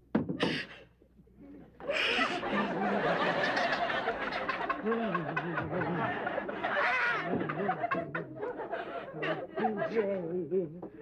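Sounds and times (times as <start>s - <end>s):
audience laughing: 1.8s - 10.2s
high-pitched cry: 1.9s - 2.4s.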